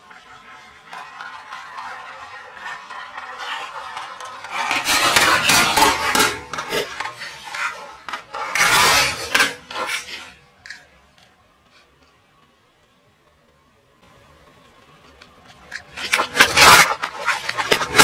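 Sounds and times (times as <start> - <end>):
plastic toys cracking under tyre: 15.2 - 18.0.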